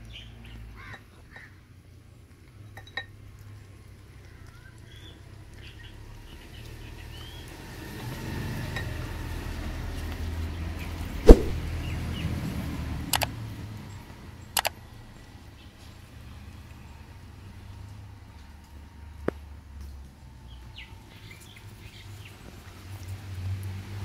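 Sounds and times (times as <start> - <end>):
passing vehicle rumble: 5.2 - 19.1
sharp clicks: 11.3 - 11.6, 13.1 - 13.3.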